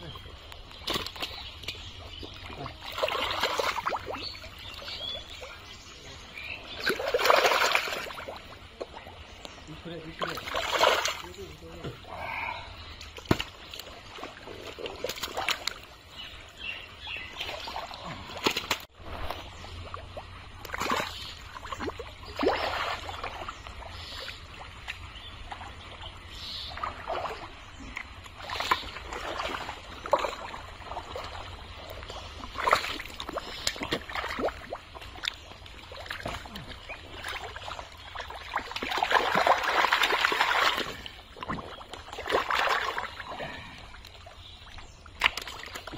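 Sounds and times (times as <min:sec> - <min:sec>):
hands squelching through wet mud: 0:00.0 - 0:05.3, 0:06.4 - 0:09.5, 0:12.2 - 0:16.3, 0:17.0 - 0:19.6, 0:20.5 - 0:25.8, 0:26.7 - 0:45.9
water splashing: 0:00.0 - 0:45.9.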